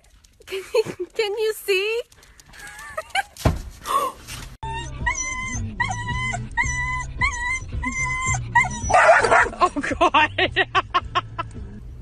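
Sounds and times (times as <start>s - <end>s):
music: 4.6s - 9.1s
dog yipping and whining: 4.6s - 9.6s.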